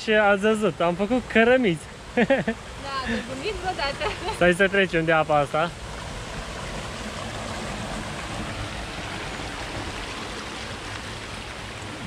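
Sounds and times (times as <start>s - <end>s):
water rushing in channel: 0.0s - 12.0s.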